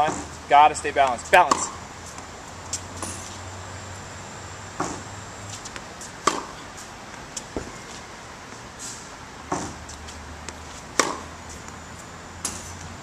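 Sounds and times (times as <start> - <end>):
tennis racket striking ball: 1.0 - 1.8, 5.6 - 6.6, 10.5 - 11.3
ball bouncing on hard court: 1.4 - 1.8.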